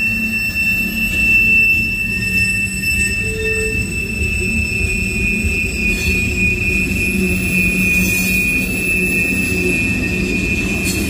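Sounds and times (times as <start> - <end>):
high-pitched wheel squeal: 0.0 - 11.0
train wheels rumbling on rail: 0.0 - 11.0.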